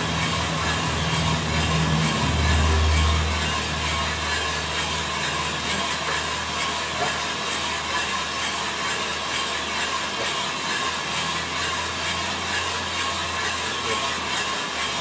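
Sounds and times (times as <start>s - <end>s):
coffee roaster low hum: 0.0s - 15.0s.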